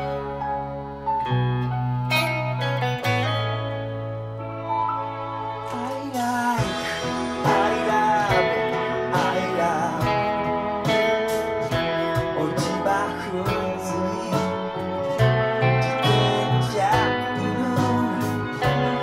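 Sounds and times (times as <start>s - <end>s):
band backing track: 0.0s - 19.0s
electric guitar with string bends: 0.0s - 19.0s
steady drum beat: 6.1s - 14.6s.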